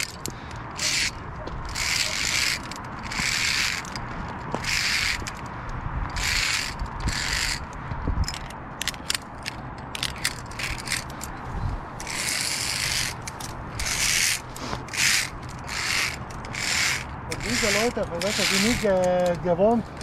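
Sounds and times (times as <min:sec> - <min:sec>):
rasping scrapes on cable: 0:00.0 - 0:05.4, 0:06.1 - 0:07.7, 0:12.0 - 0:19.4
carabiners clicking and rattling: 0:00.0 - 0:20.0.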